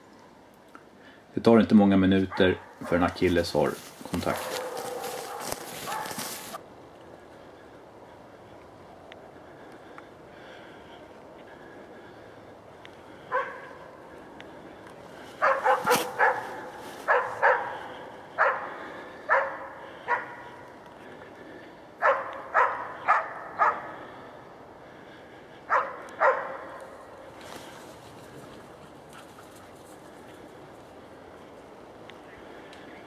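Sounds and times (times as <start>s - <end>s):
dog barking: 2.3s - 3.1s, 4.3s - 6.3s, 13.3s - 13.8s, 15.4s - 18.7s, 19.3s - 20.6s, 22.0s - 23.9s, 25.7s - 26.8s.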